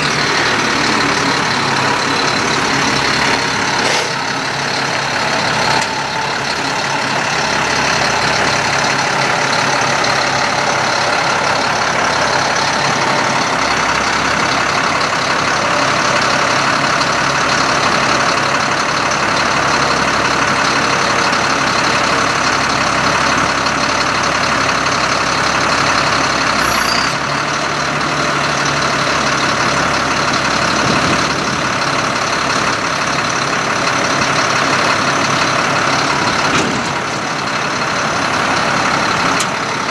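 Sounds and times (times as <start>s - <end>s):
truck engine running: 0.0s - 39.9s.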